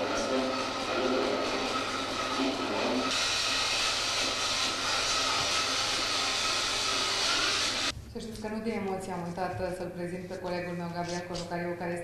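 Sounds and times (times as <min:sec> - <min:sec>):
loud steady static hiss: 0:00.0 - 0:07.9.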